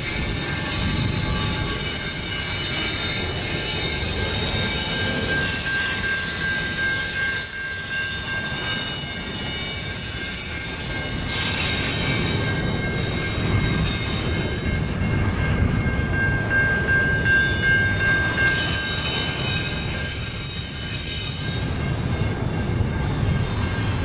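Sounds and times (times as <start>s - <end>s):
train wheels rumbling on rail: 0.0s - 24.0s
high-pitched wheel squeal: 18.4s - 22.1s.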